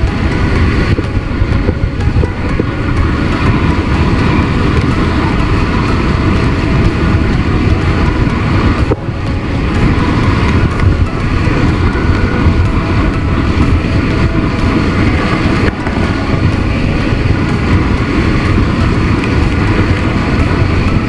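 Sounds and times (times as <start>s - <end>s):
water rushing and spraying: 0.0s - 21.0s
wind buffeting microphone: 0.0s - 21.0s.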